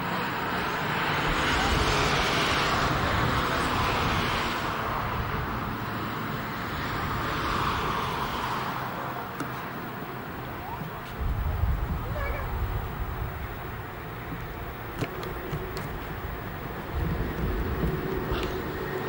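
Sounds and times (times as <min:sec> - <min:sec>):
vehicles passing on road: 0:00.0 - 0:19.0
low rumble: 0:11.1 - 0:15.0, 0:15.6 - 0:19.0.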